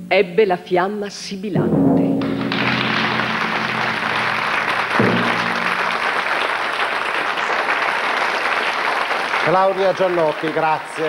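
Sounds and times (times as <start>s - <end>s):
sustained background music chords: 0.0s - 7.2s
audience applauding: 2.3s - 11.0s.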